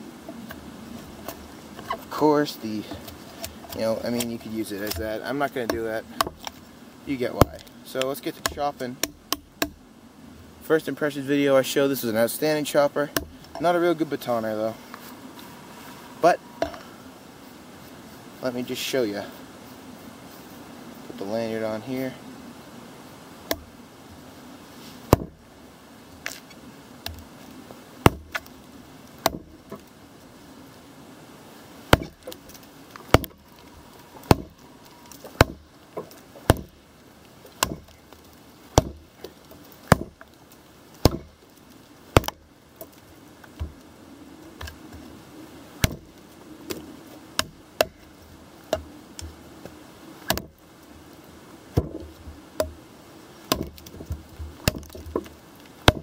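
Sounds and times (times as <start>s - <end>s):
blade chopping into log: 25.1s - 25.4s, 28.0s - 28.5s, 29.2s - 29.8s, 31.9s - 32.4s, 33.1s - 33.4s, 34.2s - 34.6s, 35.2s - 36.8s, 37.6s - 38.0s, 38.7s - 39.1s, 39.8s - 40.3s, 41.0s - 41.4s, 42.2s - 42.4s, 45.8s - 46.1s, 47.4s - 48.0s, 50.2s - 50.5s, 53.5s - 56.0s.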